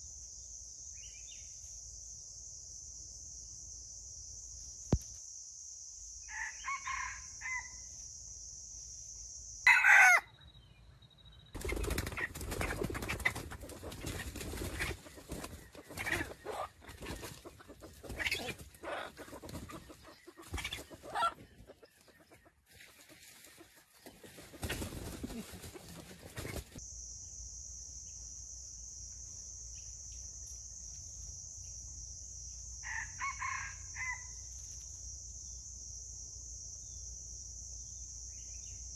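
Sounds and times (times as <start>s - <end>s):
insect drone: 0.0s - 21.6s, 24.0s - 38.9s
rooster call: 9.7s - 10.3s
rooster clucking: 12.2s - 22.6s.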